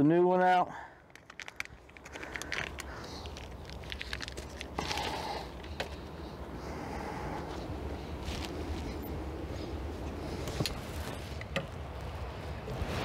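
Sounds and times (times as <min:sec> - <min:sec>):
steady low hum: 0:00.9 - 0:13.0
clicks and crackling rustle: 0:01.0 - 0:06.1.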